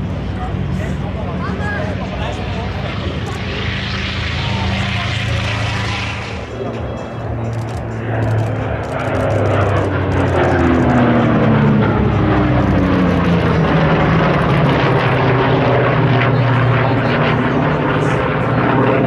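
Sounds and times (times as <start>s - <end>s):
propeller aircraft engines droning: 0.0s - 19.0s.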